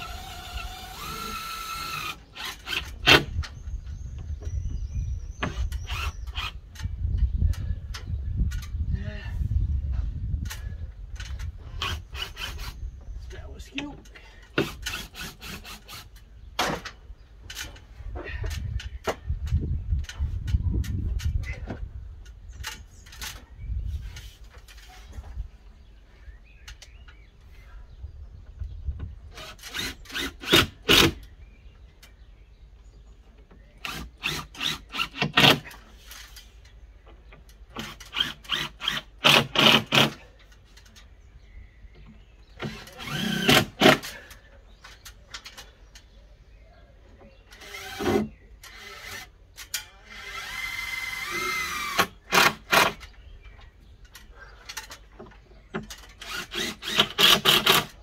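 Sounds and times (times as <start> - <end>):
drill-driver rapid sharp clicks: 56.2 - 58.0.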